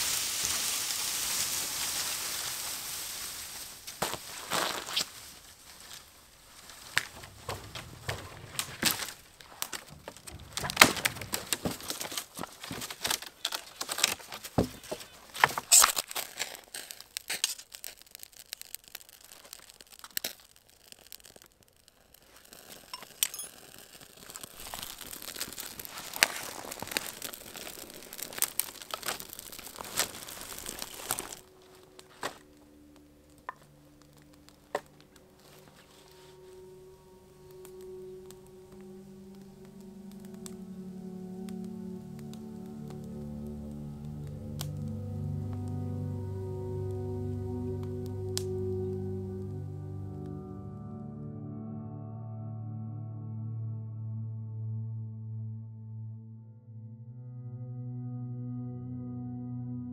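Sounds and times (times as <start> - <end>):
bark tearing and crinkling: 1.8 - 45.7
steady low tones: 31.4 - 59.9.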